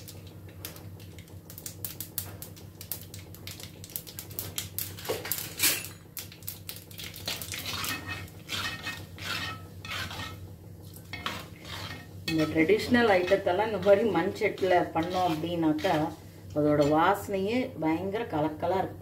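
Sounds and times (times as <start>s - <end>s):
mustard seeds popping in oil: 0.0s - 8.4s
ladle stirring against pot: 7.0s - 17.2s.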